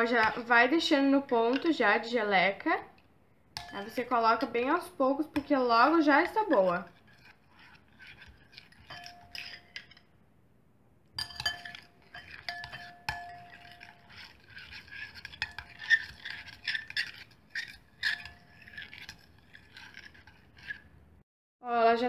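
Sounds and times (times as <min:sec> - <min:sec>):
spoon stirring slime: 0:00.0 - 0:10.1, 0:11.2 - 0:21.1
spoon clinking against glass: 0:03.6 - 0:04.0, 0:08.8 - 0:09.8, 0:11.2 - 0:14.1.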